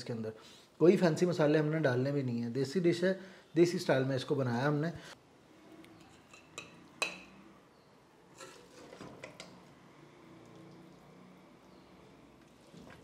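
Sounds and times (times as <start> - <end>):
metal ladle clinking on pot: 6.2 - 7.4.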